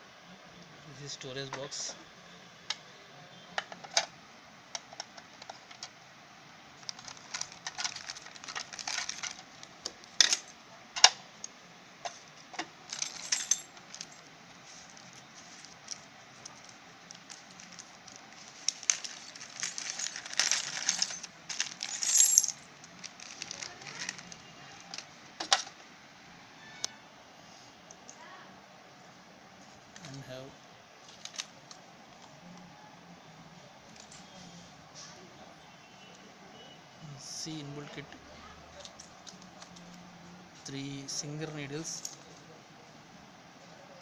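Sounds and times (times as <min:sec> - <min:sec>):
plastic bag rustling: 0:06.8 - 0:10.5, 0:12.8 - 0:25.1
small plastic parts clattering on stone: 0:06.9 - 0:09.5, 0:12.6 - 0:25.7.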